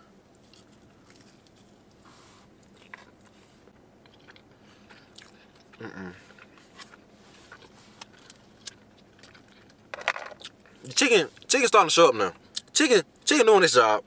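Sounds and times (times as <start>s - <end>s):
person chewing: 0.3s - 11.5s
person humming: 5.8s - 6.2s.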